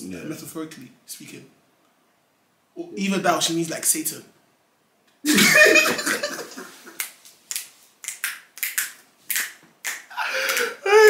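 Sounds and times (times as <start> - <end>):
men laughing: 5.3 - 7.0.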